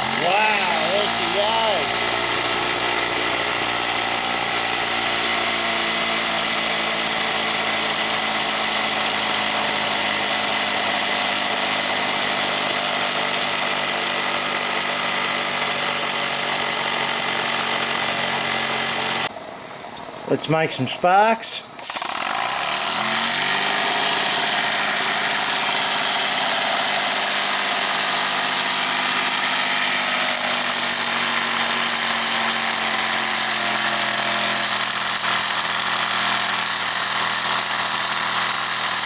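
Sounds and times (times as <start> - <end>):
toy steam engine humming: 0.0 - 5.5.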